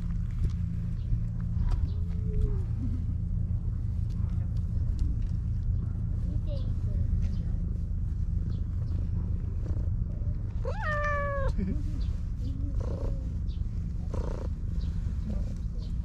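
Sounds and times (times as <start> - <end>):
steady low rumble: 0.0 - 16.0
cat meowing: 10.6 - 11.6.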